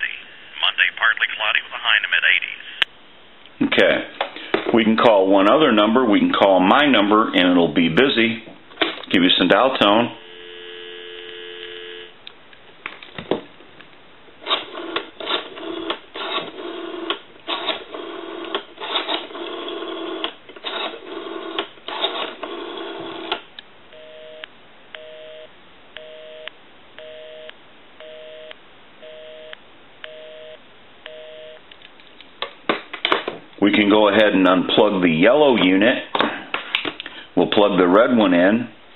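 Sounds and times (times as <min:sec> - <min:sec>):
telephone busy signal beeps: 0:10.2 - 0:12.1, 0:23.9 - 0:31.6
telephone dial tone: 0:10.2 - 0:12.1, 0:14.5 - 0:23.4.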